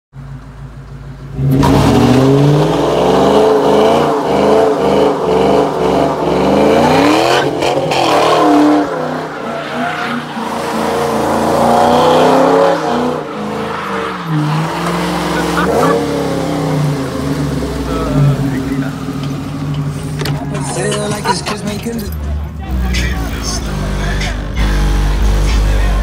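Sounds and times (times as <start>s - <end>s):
car engine revving: 0.2s - 26.0s
tyres squealing: 7.0s - 11.6s, 12.2s - 16.7s.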